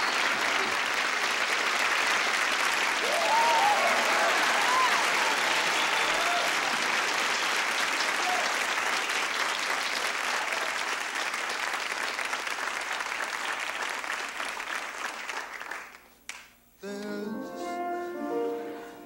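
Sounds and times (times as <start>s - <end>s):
audience applauding: 0.0s - 16.5s
crowd shouts: 3.0s - 6.8s.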